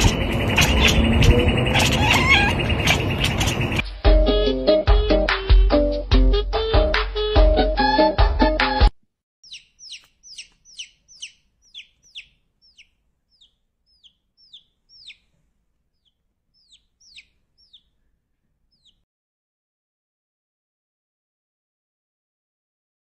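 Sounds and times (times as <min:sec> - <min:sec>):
chick peeping: 0:00.0 - 0:03.8, 0:09.4 - 0:15.3, 0:16.0 - 0:18.1, 0:18.7 - 0:19.0.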